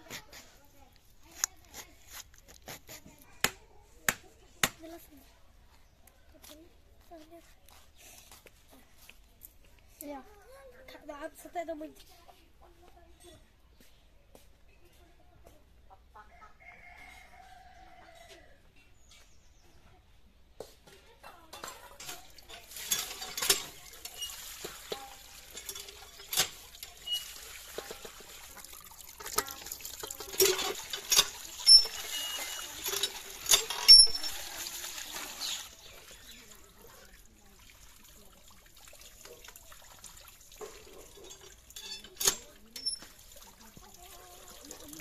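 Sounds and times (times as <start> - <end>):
faint water trickling: 21.2 - 45.0
knocks and clinks on metal bowl: 21.5 - 34.5, 40.6 - 43.2
water splashing and pouring: 22.0 - 45.0.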